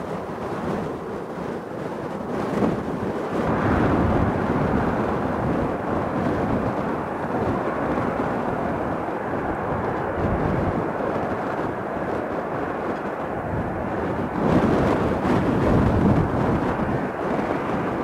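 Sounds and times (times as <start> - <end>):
jet airliner engine rumble: 0.0 - 18.0.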